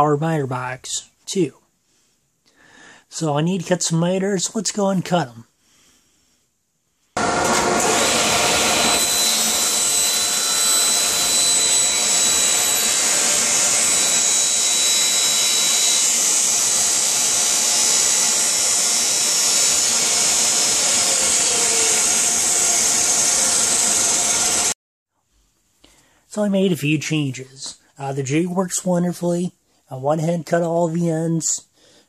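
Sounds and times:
table saw cutting plywood: 7.2s - 24.8s.

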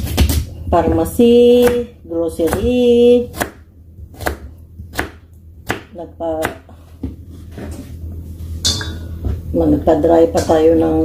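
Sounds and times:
knife chopping on cutting board: 0.0s - 7.8s.

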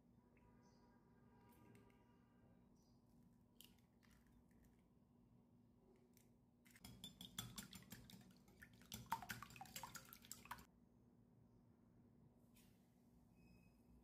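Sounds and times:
whisk beating eggs in bowl: 6.8s - 10.7s.

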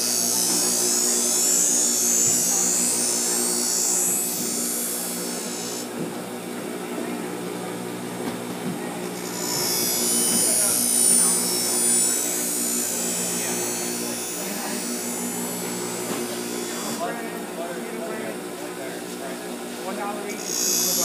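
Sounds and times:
steel grinding on abrasive: 0.0s - 5.9s, 9.1s - 17.1s, 20.4s - 21.0s
grinder motor humming: 0.0s - 21.0s.

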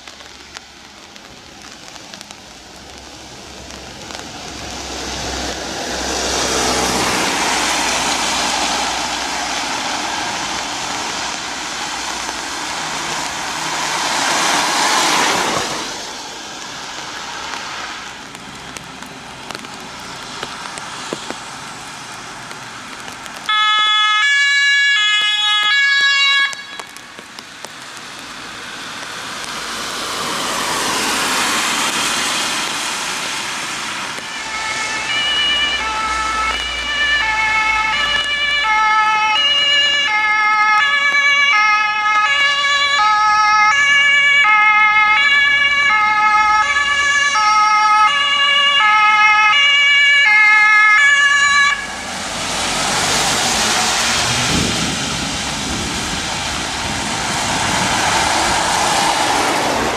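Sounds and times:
tyre hiss on wet road: 0.0s - 42.9s, 51.2s - 59.9s
two-tone siren: 23.5s - 27.0s, 34.2s - 52.0s.

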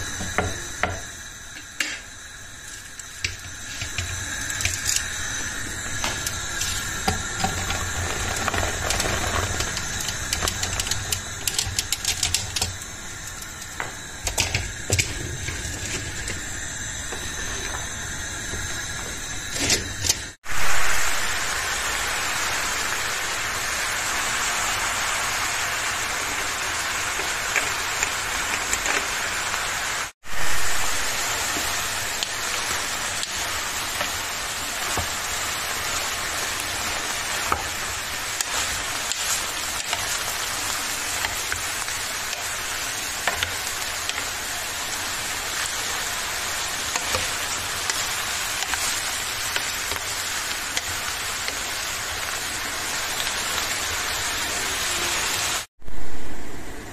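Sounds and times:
eggplant sizzling in oil: 0.0s - 55.7s.

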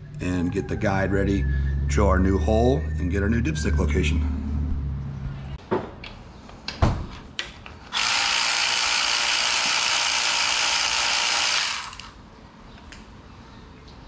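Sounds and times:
cordless electric ratchet running: 7.9s - 12.2s.

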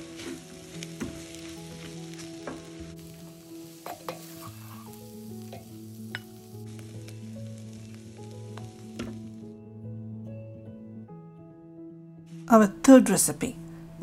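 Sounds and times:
wooden spatula scraping a wok: 0.0s - 5.7s
hot pan sizzling: 0.0s - 9.6s.

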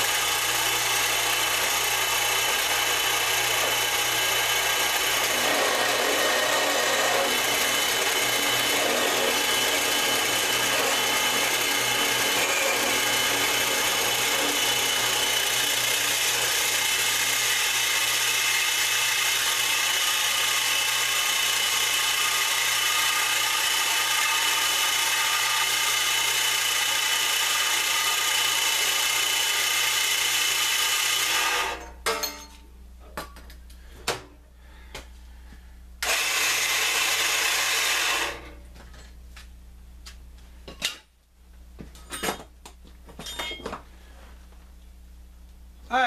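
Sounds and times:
band saw whirring: 0.0s - 31.9s, 36.0s - 38.6s.

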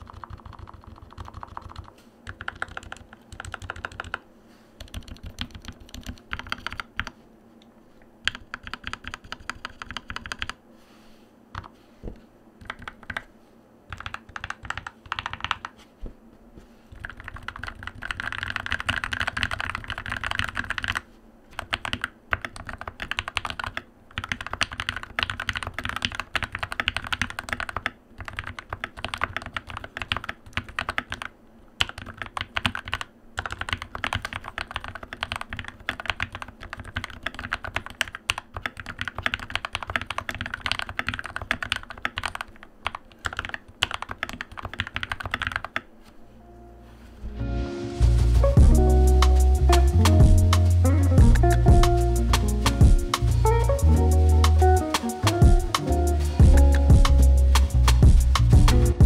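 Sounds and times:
mechanical keyboard typing: 0.0s - 4.2s, 4.8s - 7.2s, 8.2s - 10.6s, 12.6s - 13.3s, 13.9s - 15.8s, 16.9s - 45.9s.

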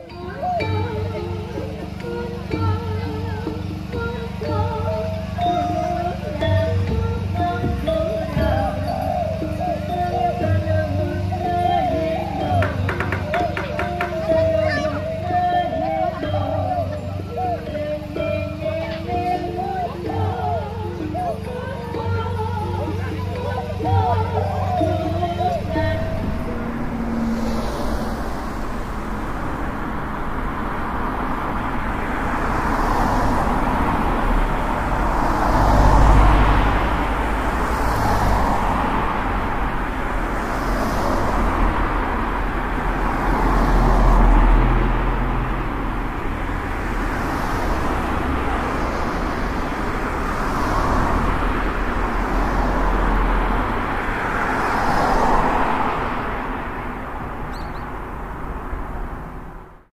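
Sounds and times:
road and traffic noise: 0.0s - 59.9s.

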